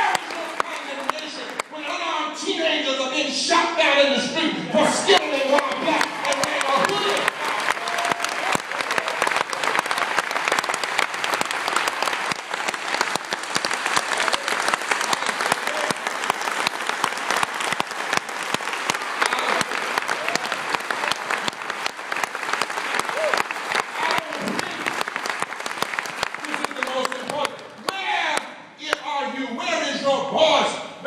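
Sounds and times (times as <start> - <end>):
audience applauding: 0.0 - 2.0, 5.0 - 28.0.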